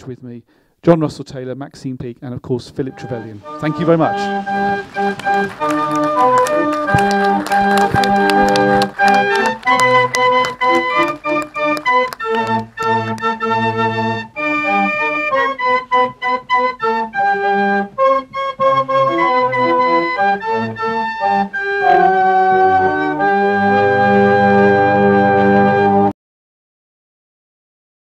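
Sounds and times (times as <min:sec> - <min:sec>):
organ music: 0:02.8 - 0:26.1
applause: 0:03.4 - 0:13.4.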